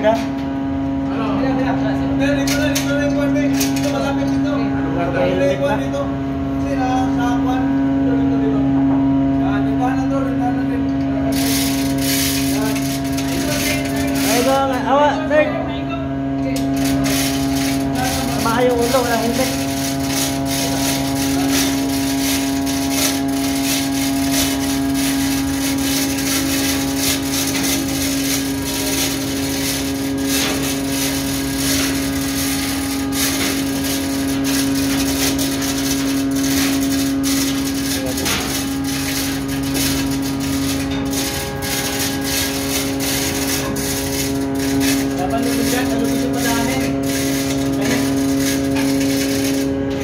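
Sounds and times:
ship machinery hum: 3.0s - 50.0s
chain hoist clicking and rattling: 11.3s - 14.7s, 16.7s - 50.0s.

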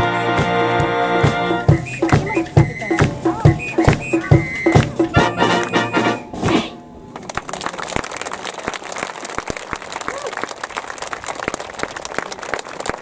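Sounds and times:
wind band playing: 0.0s - 6.8s
audience applause: 7.2s - 13.0s.

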